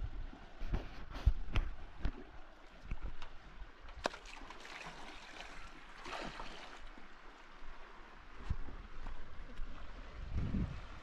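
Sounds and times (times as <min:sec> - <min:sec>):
river water rushing: 0:04.2 - 0:08.3.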